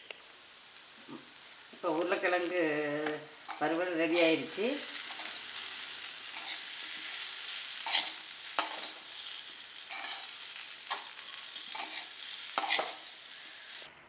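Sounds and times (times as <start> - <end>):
potatoes sizzling in oil: 0.0 - 13.9
metal spoon scraping pan: 3.4 - 13.1.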